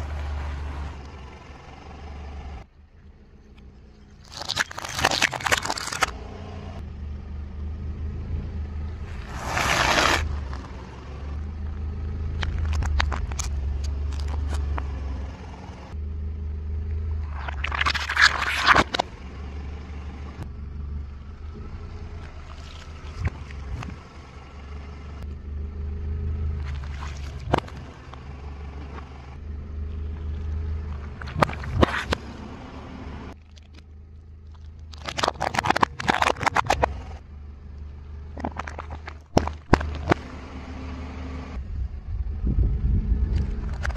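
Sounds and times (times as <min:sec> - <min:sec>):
engine and tyre rumble: 0:00.0 - 0:43.9
plastic cracking and crunching: 0:04.2 - 0:06.2, 0:33.4 - 0:37.1, 0:38.3 - 0:40.2.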